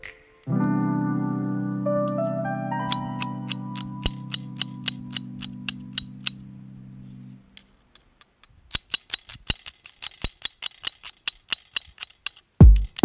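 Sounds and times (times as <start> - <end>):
background music: 0.0 - 7.4.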